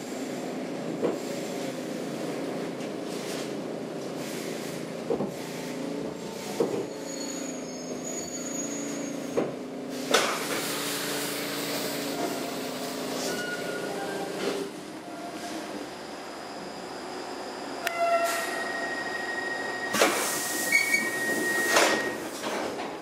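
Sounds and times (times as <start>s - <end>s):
thin high squeal: 7.0s - 9.2s, 13.2s - 14.3s, 18.0s - 22.2s.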